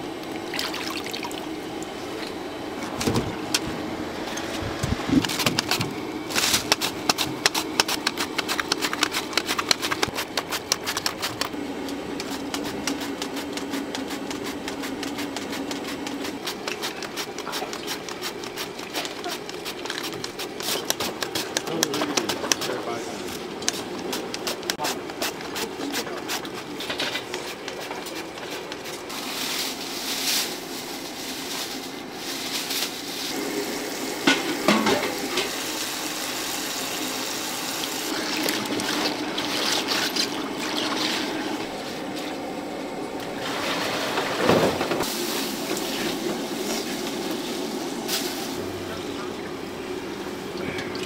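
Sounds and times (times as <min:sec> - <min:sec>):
utensils clicking and knocking: 0:04.8 - 0:22.8
water running: 0:33.4 - 0:41.7.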